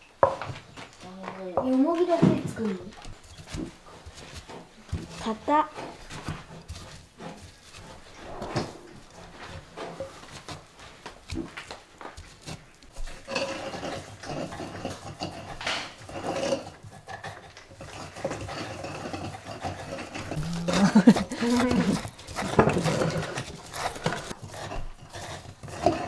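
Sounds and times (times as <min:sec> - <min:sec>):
pestle grinding in mortar: 0:03.0 - 0:08.1, 0:11.2 - 0:26.0.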